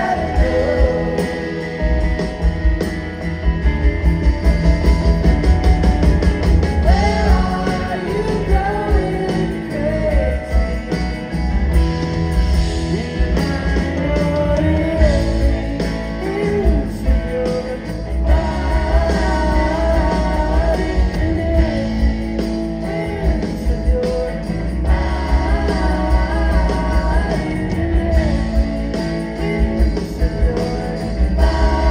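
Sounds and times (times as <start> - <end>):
voices singing: 0.0 - 2.5, 6.8 - 10.8, 12.9 - 31.9
drum kit: 0.0 - 31.9
electric bass: 0.0 - 31.9
electric guitars: 0.0 - 31.9
keyboards: 0.0 - 31.9.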